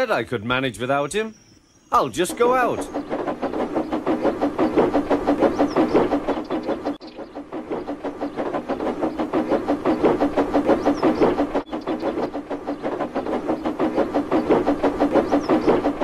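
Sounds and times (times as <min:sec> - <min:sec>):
steam engine chuffing: 0:01.9 - 0:16.0.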